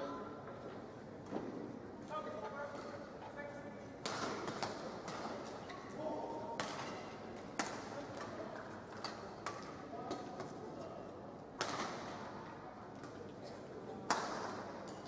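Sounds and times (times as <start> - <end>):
arena crowd noise: 0.0 - 15.0.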